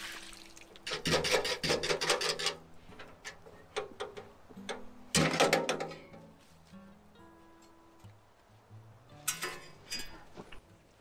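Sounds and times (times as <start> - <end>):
metal clattering and clanking: 0.9 - 6.3
metal knocks: 0.9 - 6.3.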